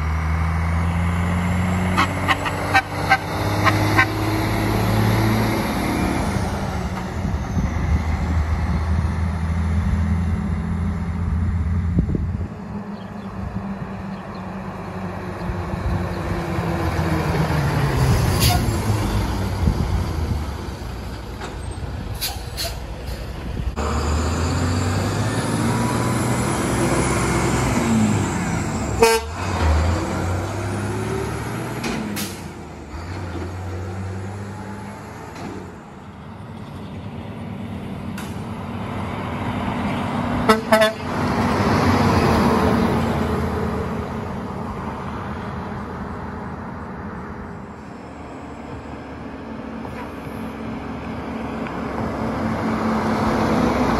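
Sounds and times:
cars going by: 0.0s - 53.9s
diesel trucks running past: 0.0s - 53.9s.

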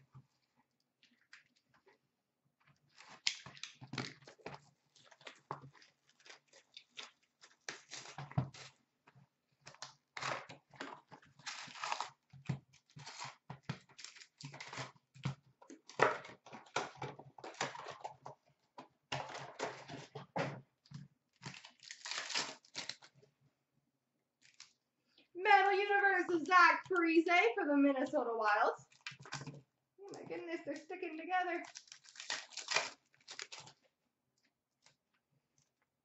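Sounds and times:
foil packs rustling and crinkling: 2.9s - 8.8s, 10.2s - 18.2s, 21.4s - 23.1s, 30.7s - 33.9s
cardboard box tearing: 11.3s - 13.4s, 21.4s - 23.1s, 31.7s - 33.8s.

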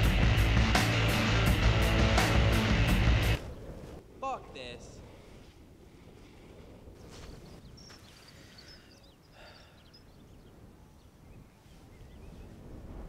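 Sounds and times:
wind buffeting microphone: 3.1s - 4.2s, 4.9s - 13.0s.

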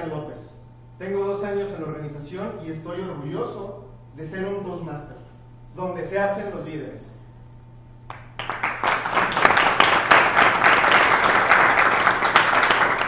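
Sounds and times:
small audience applauding: 8.1s - 13.0s.

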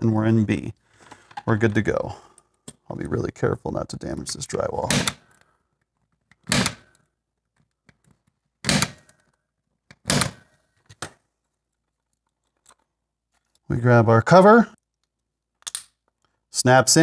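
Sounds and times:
punch-down tool snapping: 8.6s - 9.1s.

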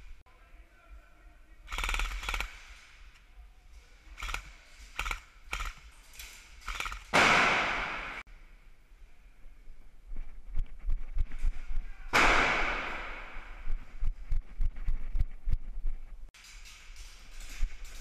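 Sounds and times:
airsoft rifles firing bursts: 1.7s - 2.7s.

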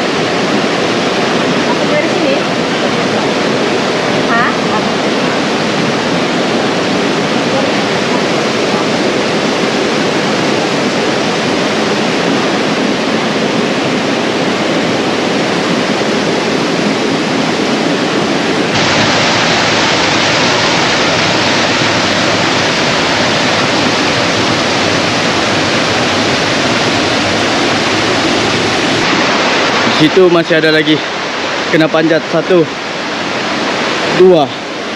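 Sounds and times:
stream rushing over rocks: 0.0s - 34.9s.

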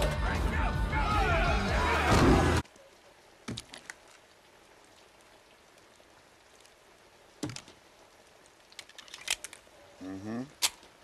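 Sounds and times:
metal clicks of handled guns: 8.7s - 9.7s, 10.6s - 10.9s.

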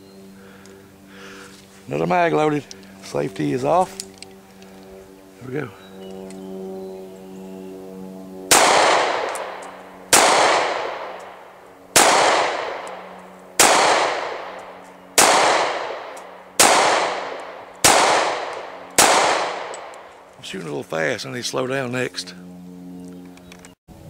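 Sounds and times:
pistol shots echoing: 8.5s - 20.1s.

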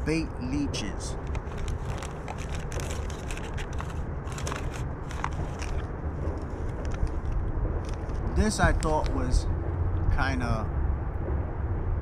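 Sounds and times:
plastic packaging crinkling: 1.2s - 8.2s.

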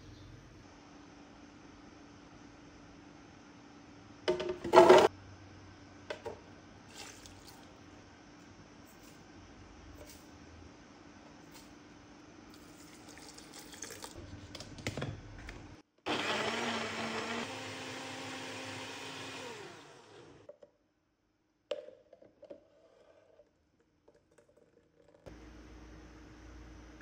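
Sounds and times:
blender motor running: 16.1s - 20.5s.

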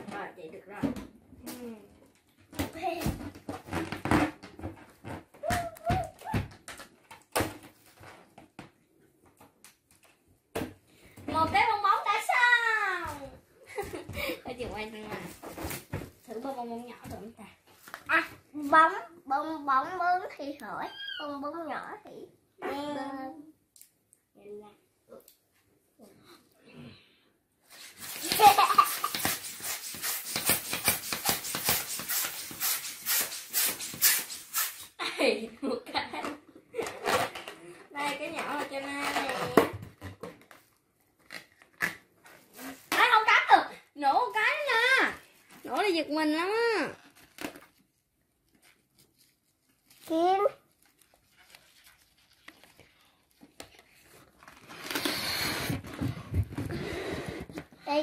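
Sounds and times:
hand pump puffs of air: 27.7s - 35.0s, 54.8s - 56.0s
rustling and rubbing: 27.7s - 35.0s, 46.9s - 57.7s.

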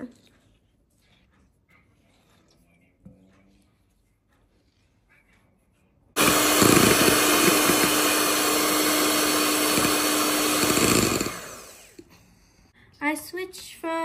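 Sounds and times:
electric hand mixer whirring: 6.2s - 12.1s.

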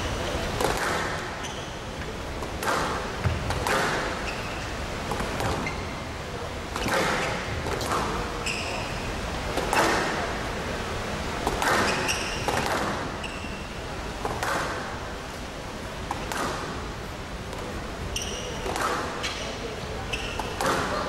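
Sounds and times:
squash ball struck by rackets: 0.6s - 1.3s, 2.4s - 4.3s, 6.7s - 8.2s, 11.4s - 13.1s, 14.2s - 14.9s, 16.1s - 16.8s
shoes squeaking on floor: 1.2s - 2.0s, 3.2s - 6.1s, 6.8s - 9.1s, 11.6s - 12.6s, 13.2s - 13.7s, 18.1s - 21.0s.

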